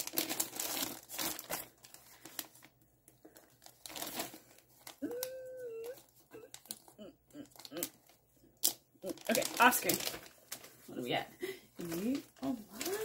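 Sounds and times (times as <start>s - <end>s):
plastic bag crinkling: 0.0s - 13.0s
person humming: 5.0s - 8.0s.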